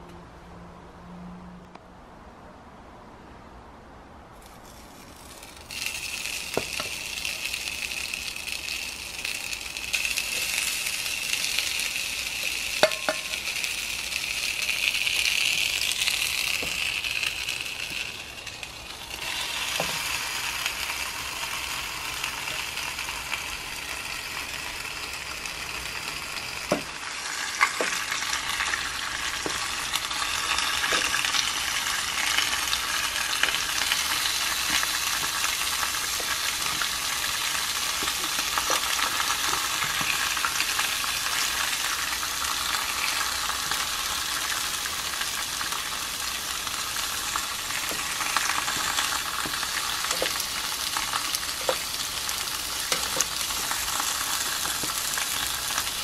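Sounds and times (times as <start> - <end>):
burger patty sizzling on grill: 4.4 - 56.0
potato slices sizzling: 4.4 - 56.0
tongs clicking on grill: 12.5 - 21.0, 32.1 - 41.4, 46.7 - 55.8.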